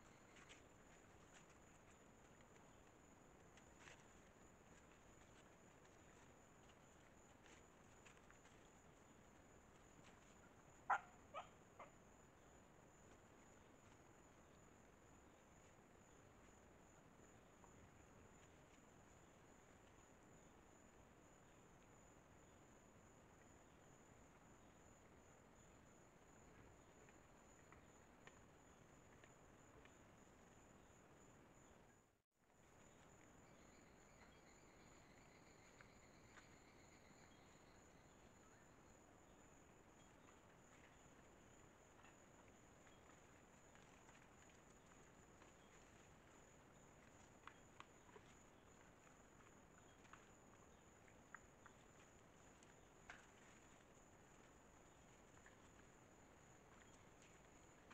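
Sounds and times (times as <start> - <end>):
high insect chorus: 32.7 - 57.9.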